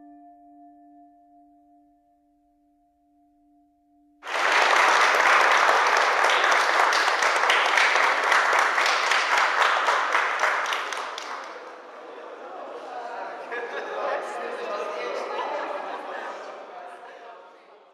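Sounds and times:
crowd applauding: 4.2s - 17.0s.

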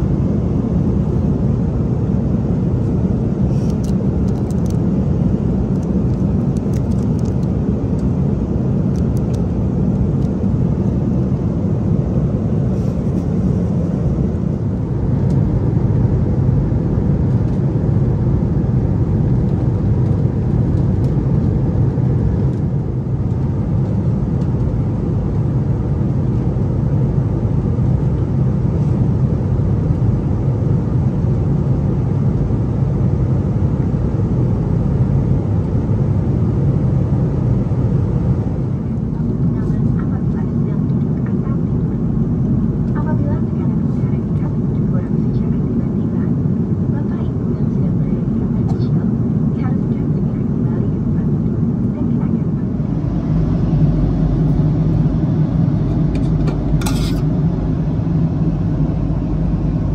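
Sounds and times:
airliner cabin drone: 0.0s - 59.9s.

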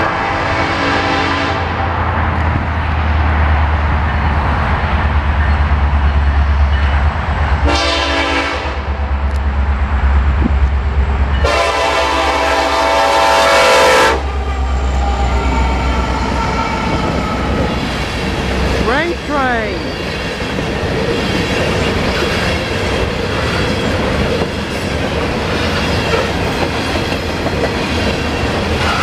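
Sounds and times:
locomotive air horn blasts: 0.0s - 1.8s, 7.6s - 8.9s, 11.4s - 17.5s.

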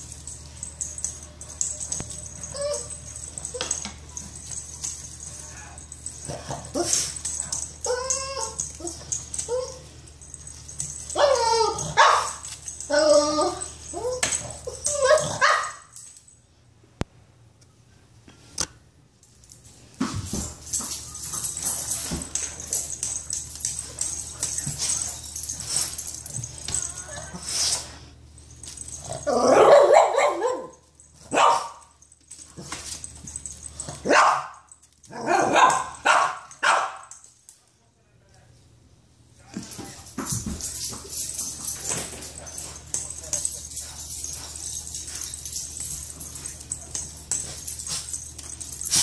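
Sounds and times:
dogs barking and yipping: 0.0s - 16.0s, 28.6s - 31.9s, 32.6s - 37.2s, 41.1s - 49.0s
dog barking: 29.5s - 30.7s, 31.3s - 31.8s, 34.0s - 34.6s, 35.2s - 37.0s.

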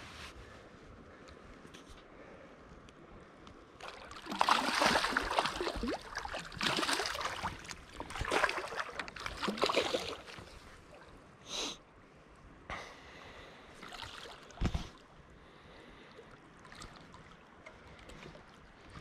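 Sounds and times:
water splashing and sloshing: 3.7s - 11.4s, 13.8s - 19.0s.

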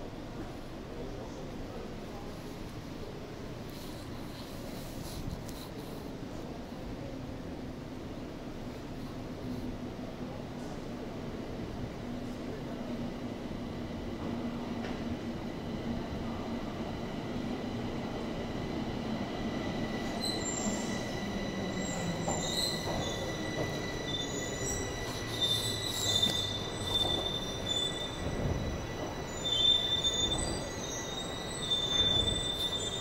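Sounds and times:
metro train wheels squealing: 14.1s - 33.0s.

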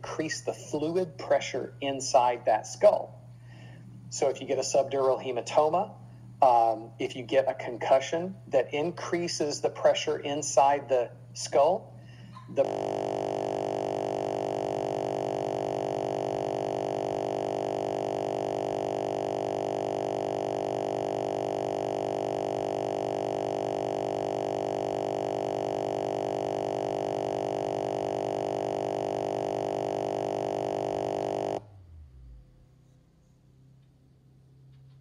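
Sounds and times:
steady buzzing drone: 10.6s - 32.4s.

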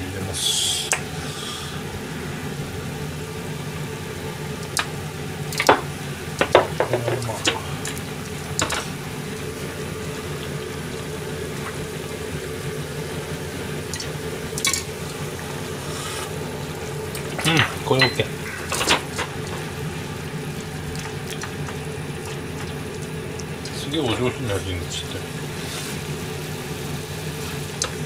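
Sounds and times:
low steady hum: 0.0s - 28.0s
liquid simmering in saucepan: 0.8s - 28.0s
pan clicks and knocks: 6.4s - 7.6s.

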